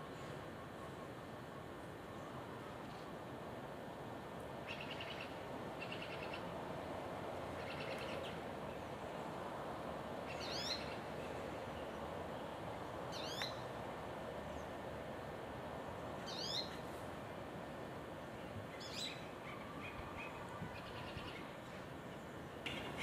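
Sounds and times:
steady background hiss: 0:00.0 - 0:23.0
songbirds calling: 0:04.6 - 0:06.5, 0:07.5 - 0:09.4, 0:10.2 - 0:13.7, 0:15.9 - 0:16.9, 0:18.3 - 0:23.0.

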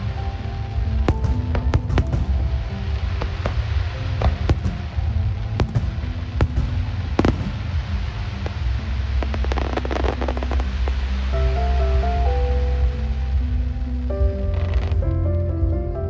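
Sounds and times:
firework crackling: 0:00.0 - 0:15.6
background music: 0:00.0 - 0:16.0
firework bangs: 0:00.8 - 0:11.1.

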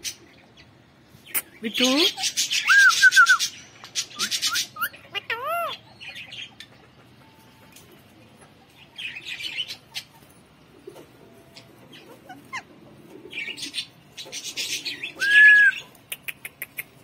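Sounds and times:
parakeet chattering: 0:03.9 - 0:07.1.

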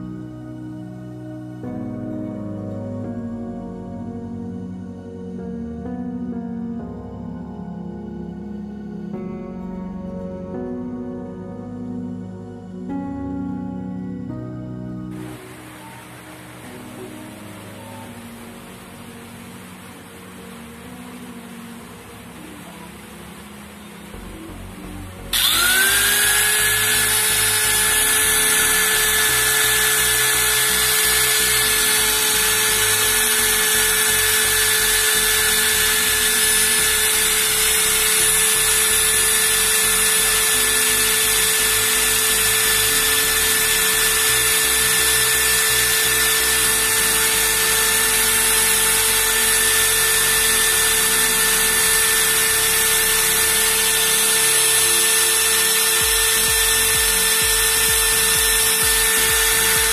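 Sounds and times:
angle grinder motor whining: 0:22.1 - 0:59.9.

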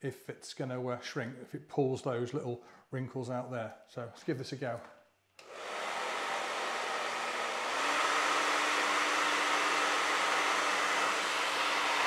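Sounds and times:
hair dryer running: 0:05.4 - 0:12.0.

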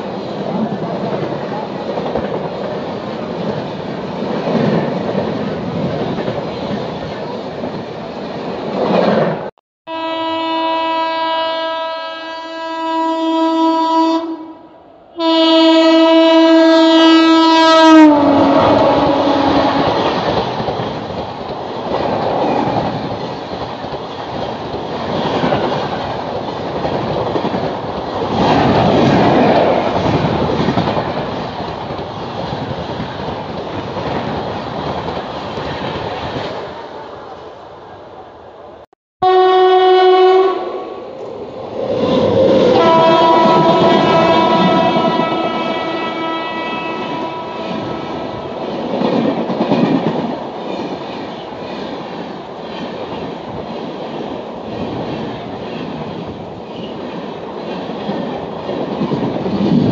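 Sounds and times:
train horn: 0:09.9 - 0:20.0, 0:39.2 - 0:41.2, 0:42.0 - 0:48.7.

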